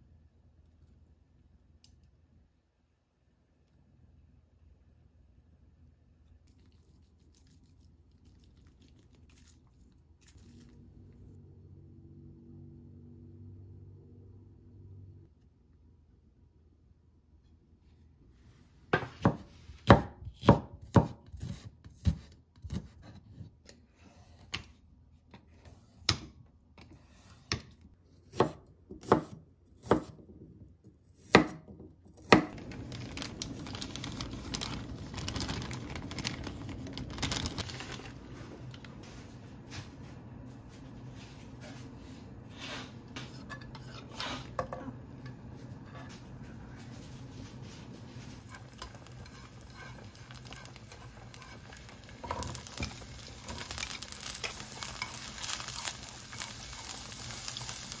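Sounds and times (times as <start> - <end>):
knife chopping on wood board: 28.3 - 30.2
pot of water boiling: 32.4 - 58.0.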